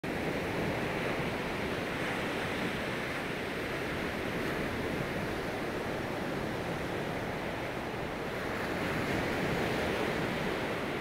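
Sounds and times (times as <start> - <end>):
waves breaking on a beach: 0.0 - 11.0.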